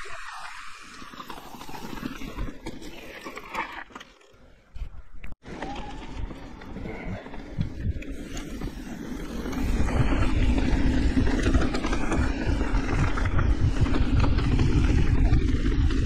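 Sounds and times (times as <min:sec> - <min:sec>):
bike tyres over dirt and rocks: 0:00.0 - 0:16.0
bike rattling and knocking: 0:05.4 - 0:16.0.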